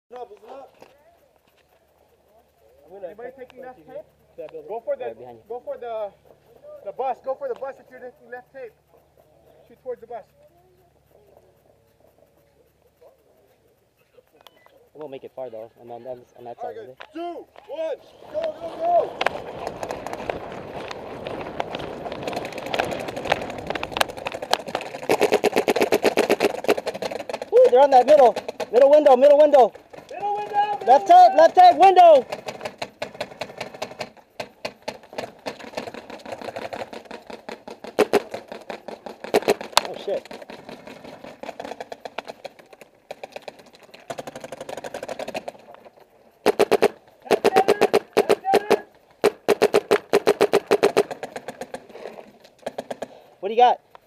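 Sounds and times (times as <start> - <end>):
gear jostling: 0.2 - 54.0
running footsteps on dirt: 0.2 - 54.0
paintball markers firing: 17.0 - 53.3.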